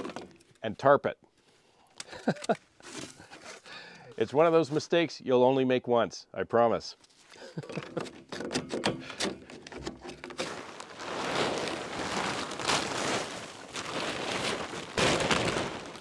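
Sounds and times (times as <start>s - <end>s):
plastic tarp rustling and crinkling: 9.2s - 16.0s.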